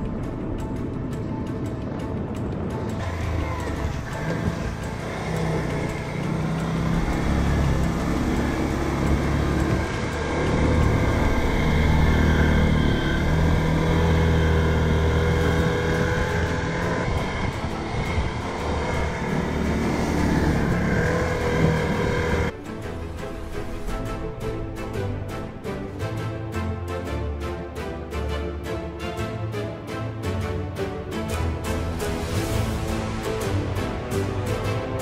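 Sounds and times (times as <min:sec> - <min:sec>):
atv engine under throttle: 0:03.0 - 0:22.5.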